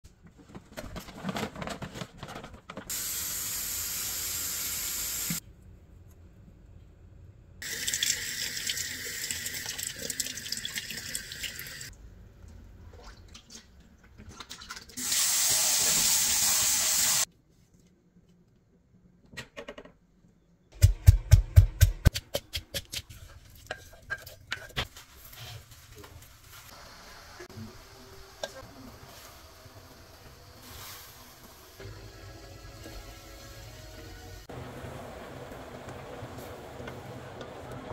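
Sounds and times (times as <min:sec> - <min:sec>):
tap water running into sink: 0:07.6 - 0:11.9.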